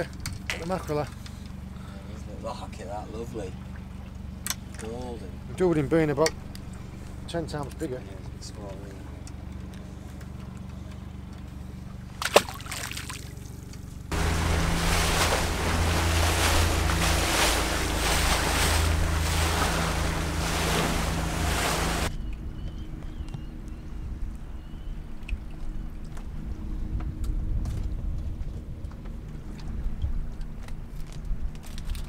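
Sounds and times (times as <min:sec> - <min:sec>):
quiet engine hum: 0:00.0 - 0:32.0
boat engine drone: 0:00.1 - 0:22.1
rush of wind and water: 0:14.1 - 0:22.1.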